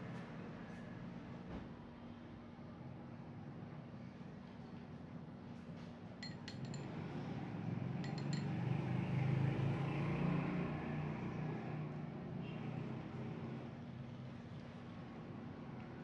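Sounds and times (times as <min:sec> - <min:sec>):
spoon clinking against glass bowl: 0:06.2 - 0:06.9, 0:08.0 - 0:08.6.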